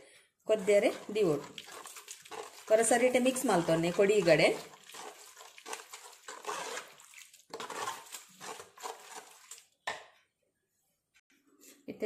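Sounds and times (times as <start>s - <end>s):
ladle stirring porridge in pot: 0.5s - 10.2s.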